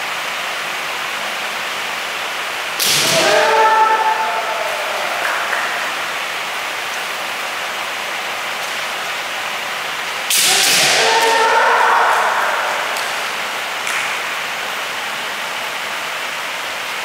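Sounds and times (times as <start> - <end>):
bamboo sword strike crack: 2.8 - 3.4, 10.3 - 11.4
person shouting: 3.0 - 5.9, 10.4 - 13.1.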